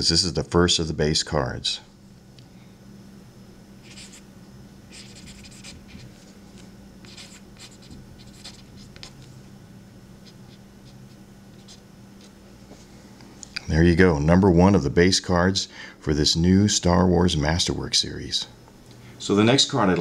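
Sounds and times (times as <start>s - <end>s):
pen scratching on card: 3.8s - 4.2s, 4.9s - 6.2s, 7.0s - 9.3s, 10.2s - 12.4s.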